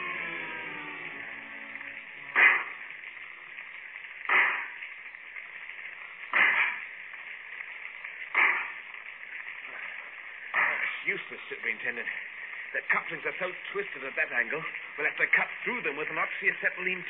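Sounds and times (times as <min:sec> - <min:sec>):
heavy hammer blows: 0:02.3 - 0:02.8.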